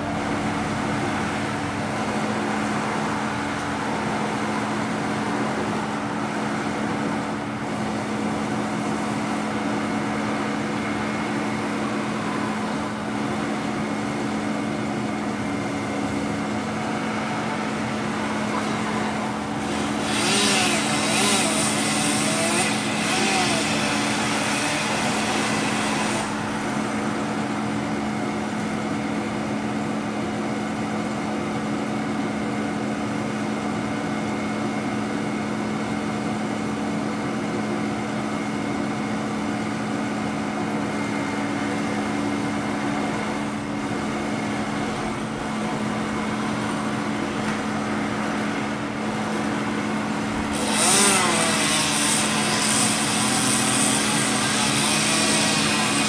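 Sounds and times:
truck engine running: 0.0s - 20.0s
chainsaw revving: 19.6s - 26.4s, 50.4s - 52.6s.

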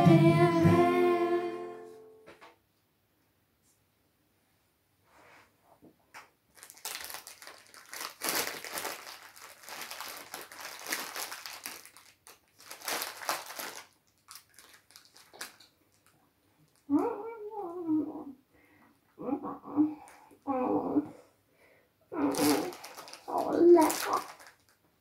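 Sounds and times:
cellophane wrapper crinkling: 6.5s - 16.9s, 22.2s - 24.8s.

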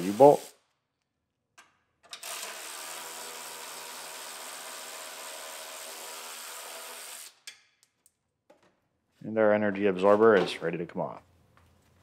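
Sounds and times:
electric ratchet motor running: 2.2s - 7.3s.

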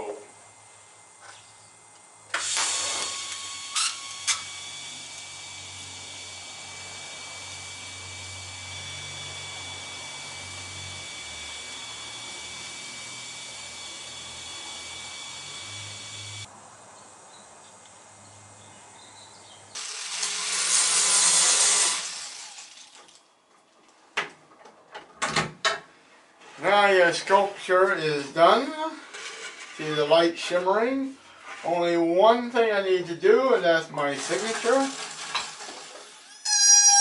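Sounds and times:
power tool whining: 2.3s - 16.5s, 19.7s - 23.1s, 34.2s - 37.0s.

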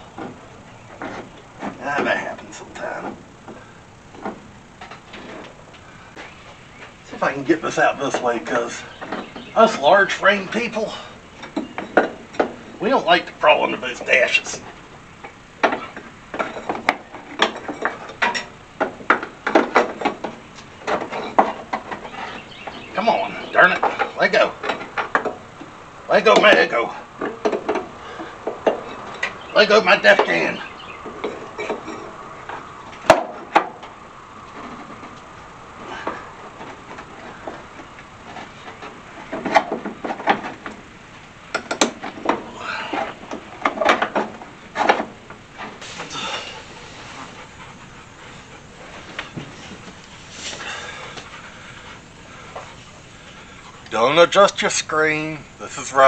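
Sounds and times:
hand tool clicking and knocking on metal: 41.5s - 42.4s.

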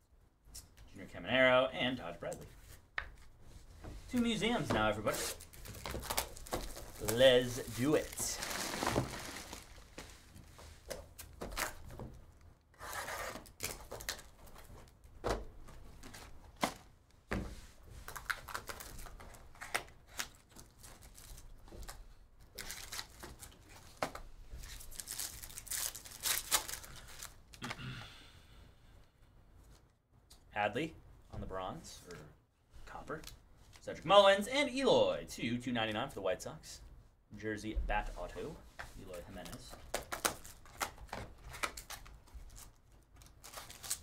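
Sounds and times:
foil pack crinkling: 5.1s - 10.1s, 18.1s - 24.0s, 24.6s - 27.6s
cardboard box torn open: 8.0s - 9.8s.

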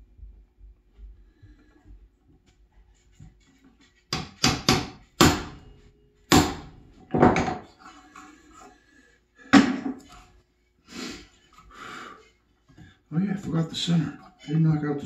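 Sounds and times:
hammer striking chisel: 4.1s - 5.6s, 6.3s - 7.7s.

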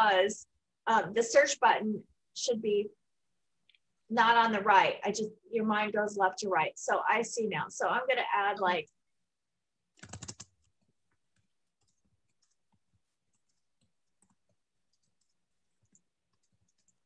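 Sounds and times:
computer mouse clicks: 10.0s - 17.0s.

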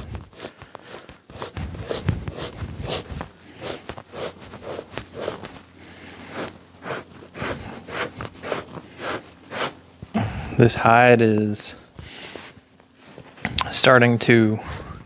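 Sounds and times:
blade scraping hide: 0.0s - 5.6s, 6.2s - 9.8s.

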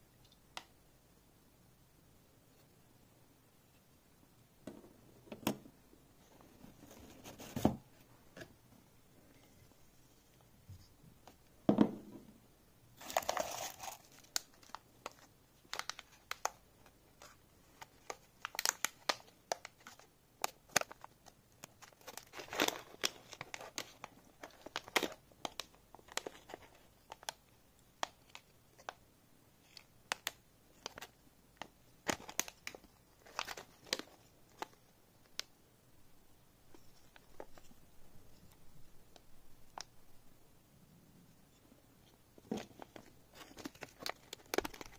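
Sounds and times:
thump: 11.7s - 12.2s
plastic bag crinkling: 13.0s - 16.6s, 42.5s - 44.9s.

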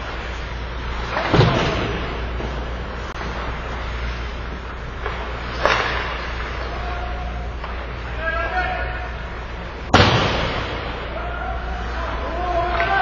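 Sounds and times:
steady low hum: 0.0s - 12.8s
sharp knocks in rink: 1.1s - 2.6s, 5.0s - 6.7s, 9.9s - 11.0s.

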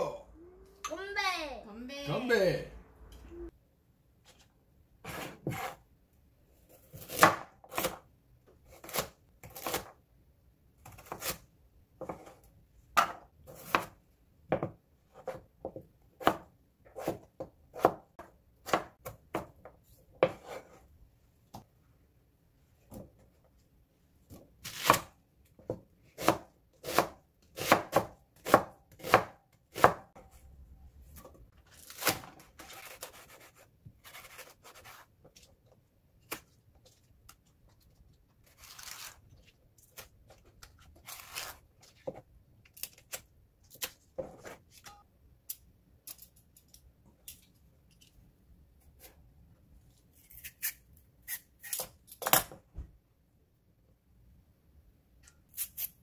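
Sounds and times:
knife chopping on wooden board: 25.7s - 30.2s.

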